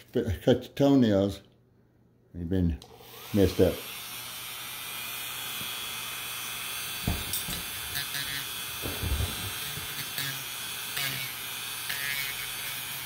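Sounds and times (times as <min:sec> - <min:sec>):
rotary tool whining: 0:02.8 - 0:13.0.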